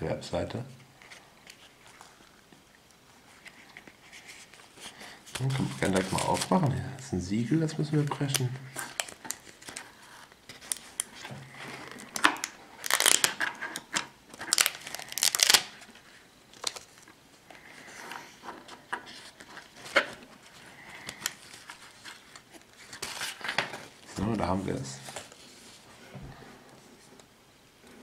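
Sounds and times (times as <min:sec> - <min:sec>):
package crinkling and tearing: 0:05.3 - 0:06.7, 0:08.1 - 0:15.9, 0:16.5 - 0:17.1, 0:21.0 - 0:24.1.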